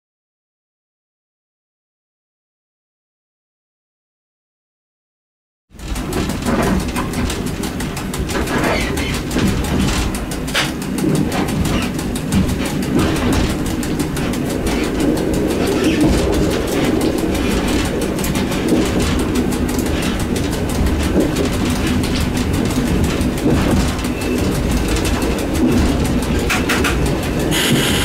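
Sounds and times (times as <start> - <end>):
fast even ticking: 5.8 - 28.0
train motors and wheels droning: 5.8 - 28.0.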